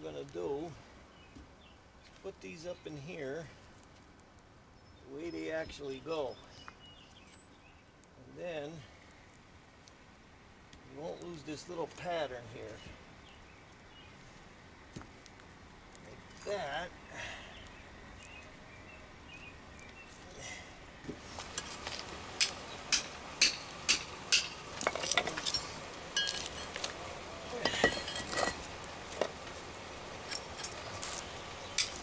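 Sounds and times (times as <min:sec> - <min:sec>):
hammer striking concrete: 0:22.4 - 0:25.4.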